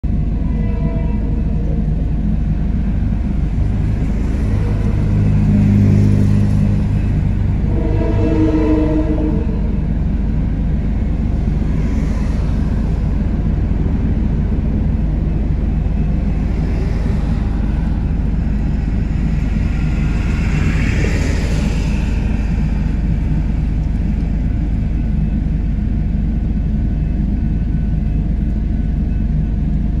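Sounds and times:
low vehicle rumble: 0:00.0 - 0:30.0
car driving past: 0:03.6 - 0:09.8, 0:11.6 - 0:13.8, 0:16.3 - 0:24.2.

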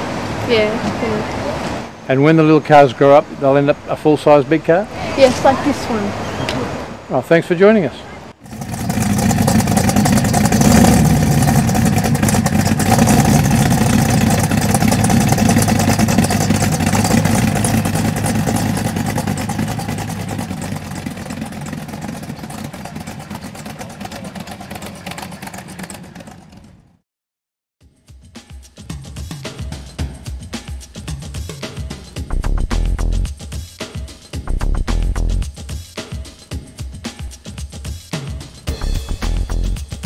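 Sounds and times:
car engine rumbling: 0:08.3 - 0:27.0.

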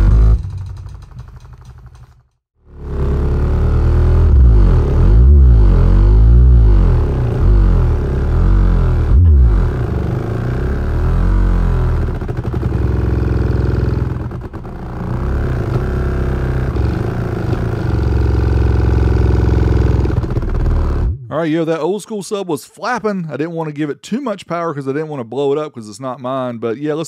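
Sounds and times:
subwoofer playing deep bass: 0:02.9 - 0:14.4.

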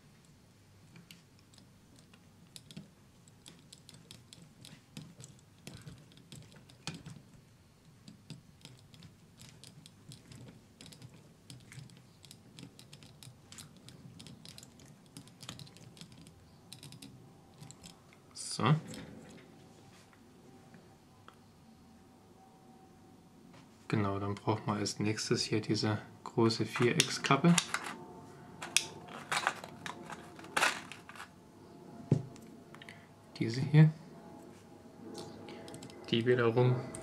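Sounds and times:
screwdriver clicking and scraping: 0:08.0 - 0:18.0.

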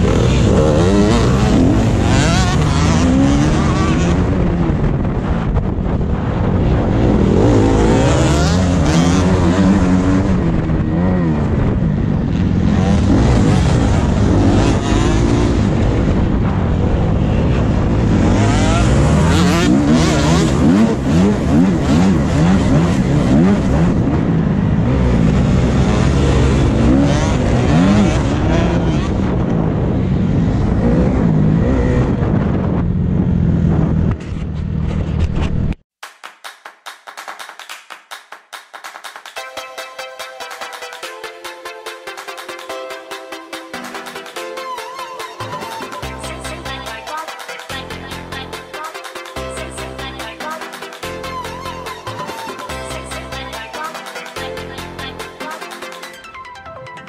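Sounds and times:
motorcycle engine revving: 0:00.0 - 0:35.8.

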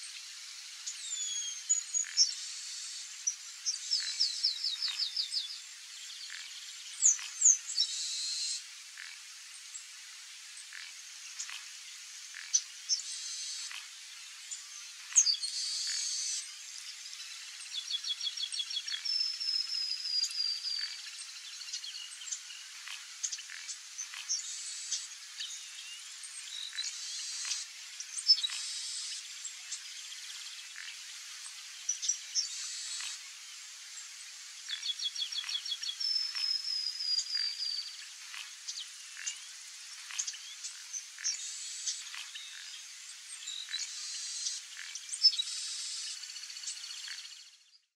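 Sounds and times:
blackbird singing: 0:00.9 - 0:02.4, 0:03.6 - 0:08.6, 0:17.7 - 0:22.4, 0:34.7 - 0:38.0.

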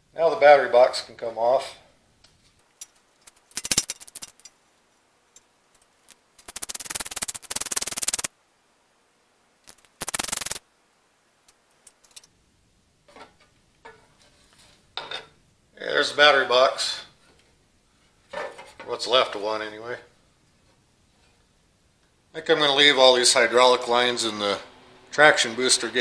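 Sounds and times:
ratchet wrench clicking: 0:02.8 - 0:04.5, 0:06.4 - 0:08.3, 0:09.7 - 0:10.6
faint metal scrape: 0:13.1 - 0:15.4, 0:20.6 - 0:21.6.

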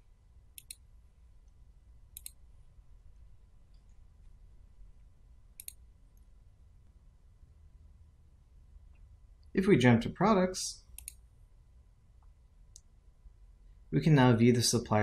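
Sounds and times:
computer mouse double clicks: 0:02.2 - 0:02.4.

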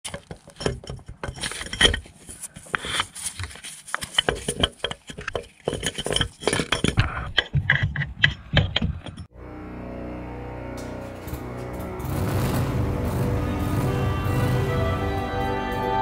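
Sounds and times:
metallic clinks and knocks: 0:00.1 - 0:02.7, 0:03.6 - 0:09.3.

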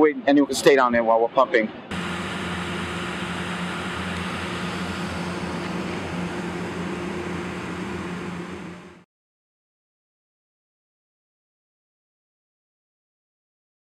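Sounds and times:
engine-driven pump running: 0:01.9 - 0:09.0.

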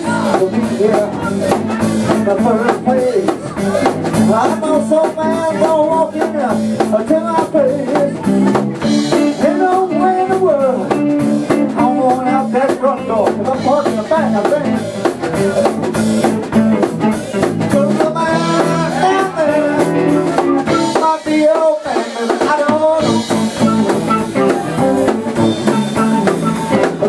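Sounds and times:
blues band playing: 0:00.0 - 0:27.0
flute lead melody: 0:18.1 - 0:21.5, 0:22.9 - 0:27.0.

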